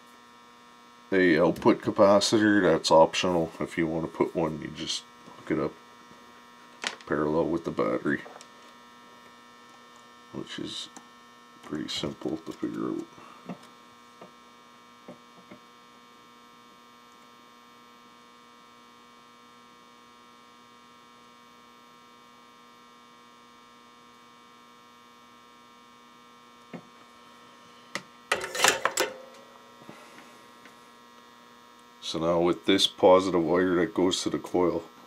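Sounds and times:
electrical mains hum: 0.0 - 35.0
clattery handling noise: 28.3 - 29.4.

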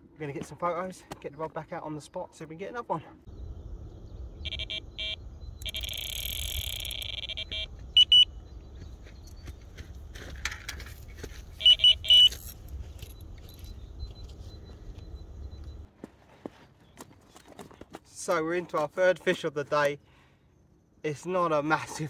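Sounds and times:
bite alarm continuous tone: 3.4 - 9.5, 11.4 - 15.9
electronic bite alarm beeps: 4.3 - 8.6, 11.6 - 15.9.

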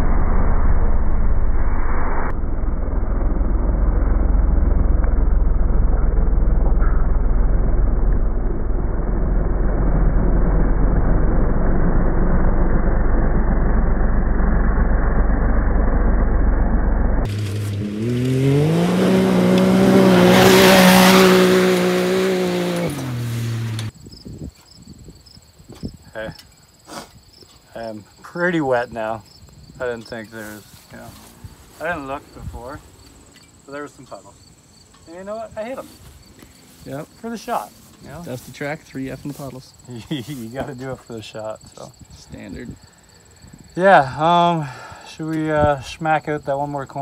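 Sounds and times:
slowed-down deep rumble: 0.0 - 18.4
engine revving: 0.0 - 24.0
dirt spraying: 17.3 - 23.9.

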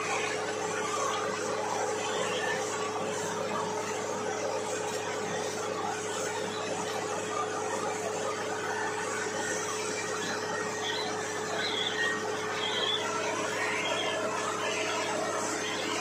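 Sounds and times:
drilling rig running: 0.0 - 16.0.

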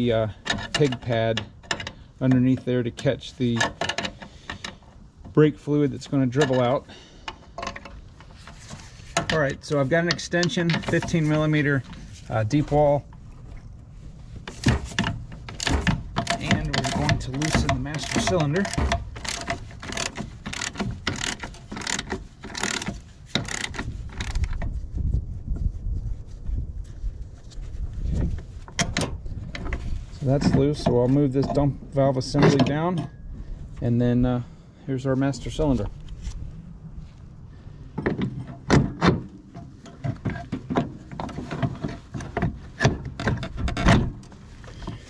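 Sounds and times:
metal parts clinking and knocking: 0.0 - 4.8, 14.5 - 24.5.

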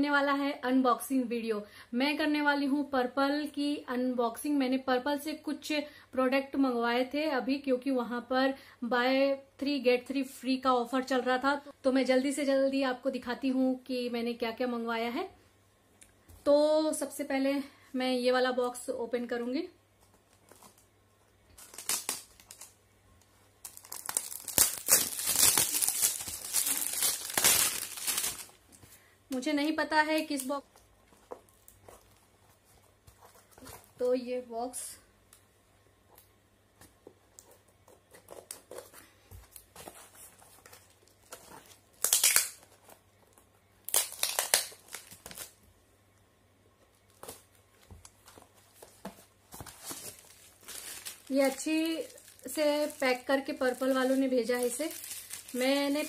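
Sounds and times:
packaging tearing and crinkling: 21.5 - 22.8, 23.6 - 28.6, 40.5 - 45.6, 48.3 - 56.0.

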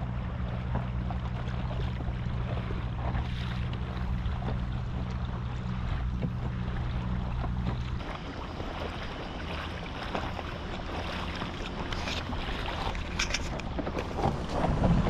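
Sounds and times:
boat knocks: 0.0 - 15.0
low steady hum: 0.0 - 15.0
water lapping against boat hull: 0.0 - 15.0
wind on microphone: 11.8 - 15.0.

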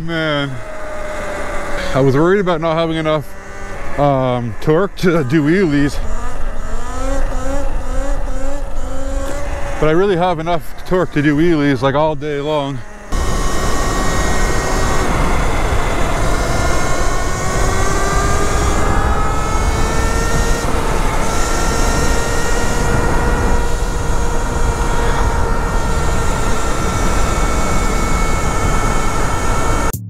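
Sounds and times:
electric motorcycle motor whining: 0.0 - 30.0
wind rush on microphone: 13.1 - 29.9.

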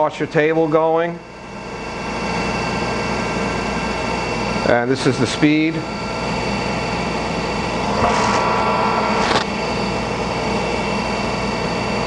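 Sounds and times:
grinding machine hum: 7.5 - 11.1.

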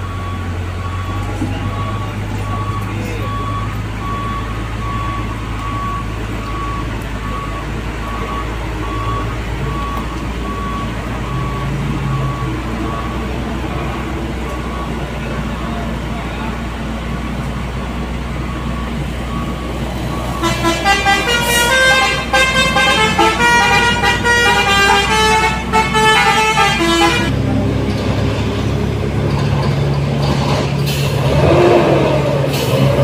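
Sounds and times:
deep engine drone: 0.0 - 33.0
truck engine labouring: 0.0 - 33.0
vehicle horn tones: 20.4 - 27.3.

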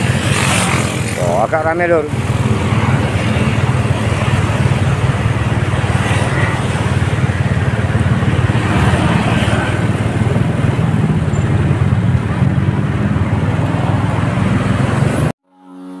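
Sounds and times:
low traffic rumble: 0.0 - 15.4
motorcycles passing: 0.0 - 16.0
van and car passing: 0.0 - 16.0.

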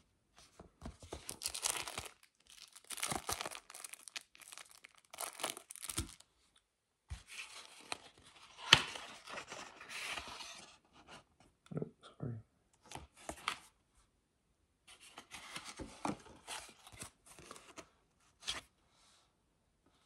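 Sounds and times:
plastic sleeve crinkling: 1.2 - 6.2.

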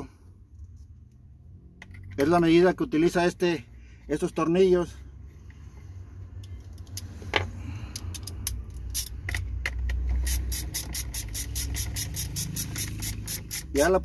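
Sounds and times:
low steady rumble: 0.0 - 14.0
socket ratchet clicking: 7.9 - 13.9.

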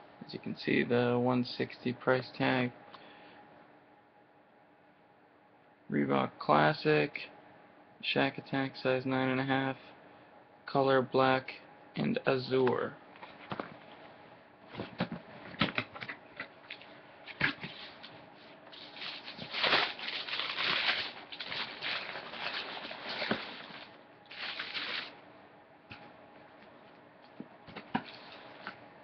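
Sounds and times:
cardboard box and paper rustling: 18.8 - 25.1.

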